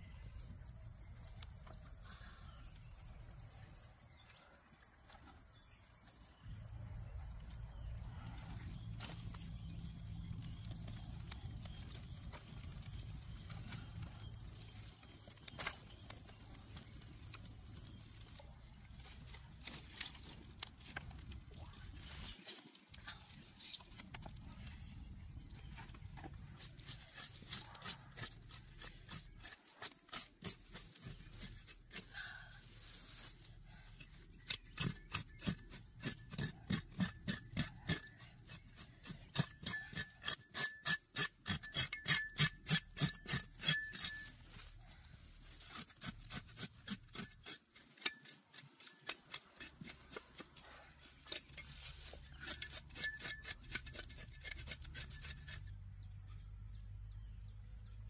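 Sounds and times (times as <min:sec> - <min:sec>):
knife scraping and cutting hide: 0:25.7 - 0:55.9.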